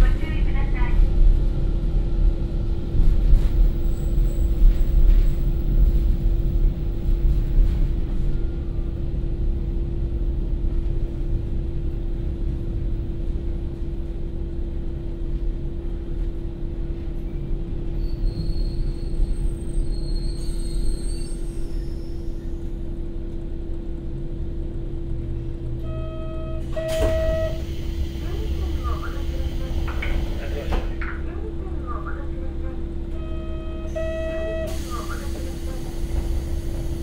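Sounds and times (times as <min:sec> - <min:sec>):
high brake squeal: 0:18.0 - 0:22.7, 0:26.6 - 0:28.4
diesel railcar engine idling: 0:20.6 - 0:37.0.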